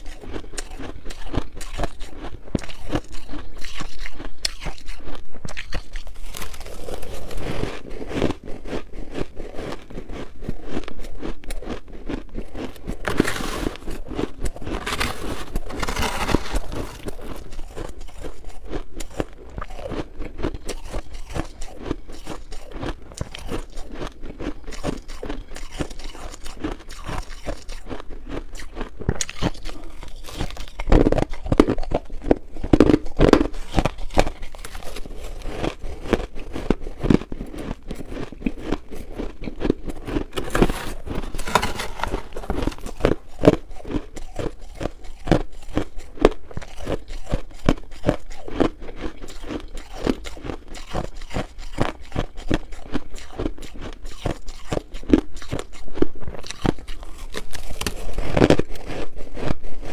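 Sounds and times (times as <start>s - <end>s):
crunching and chewing ice: 0.0s - 59.9s
spoon scraping ice in dish: 40.3s - 43.7s.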